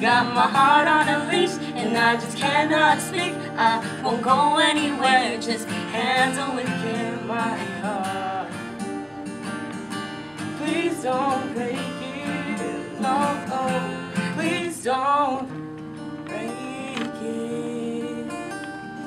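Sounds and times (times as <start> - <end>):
person singing: 0.0 - 9.2, 10.5 - 15.5, 16.2 - 19.0
strummed acoustic guitar: 0.0 - 19.0.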